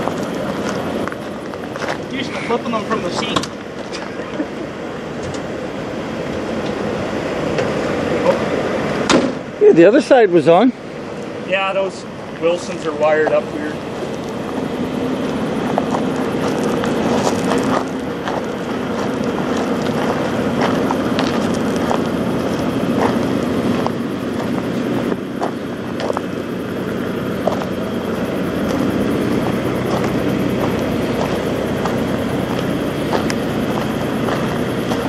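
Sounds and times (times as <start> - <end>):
diesel truck engine idling: 0.0 - 35.0.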